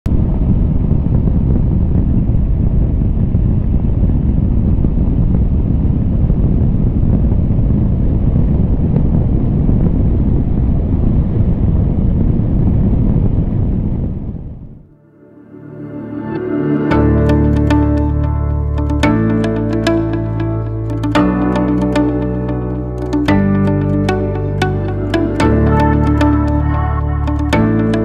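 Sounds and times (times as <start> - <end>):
wind buffeting microphone: 0.1 - 14.9.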